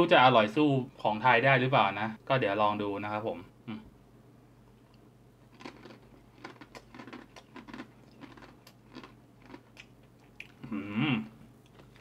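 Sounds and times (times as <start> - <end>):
person chewing crunchy noodles: 5.5 - 12.0.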